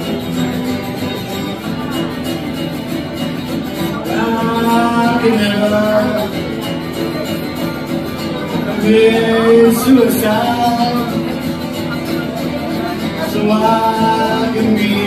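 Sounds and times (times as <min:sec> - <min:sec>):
acoustic guitar strumming: 0:00.0 - 0:15.0
man singing: 0:03.6 - 0:15.0.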